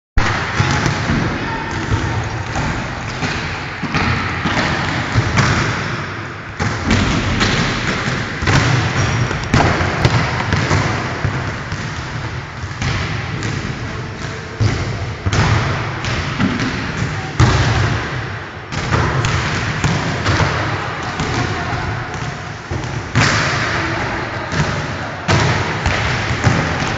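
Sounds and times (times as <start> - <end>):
hand hitting volleyball: 0.2 - 6.0, 6.6 - 23.8.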